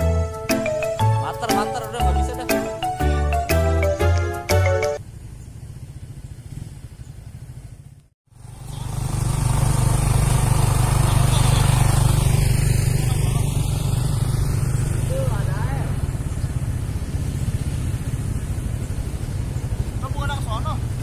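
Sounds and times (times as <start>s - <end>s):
background music: 0.0s - 5.0s
vehicle engine running: 0.0s - 21.0s
road or wind noise: 3.9s - 21.0s.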